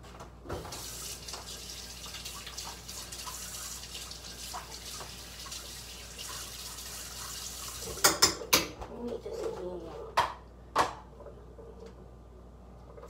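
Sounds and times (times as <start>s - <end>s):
faucet water running into sink: 0.6s - 8.4s.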